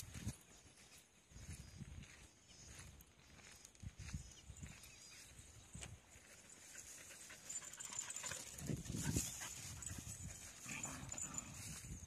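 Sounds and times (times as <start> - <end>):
dogs panting: 6.3 - 11.9
dogs play-fighting: 6.7 - 11.6.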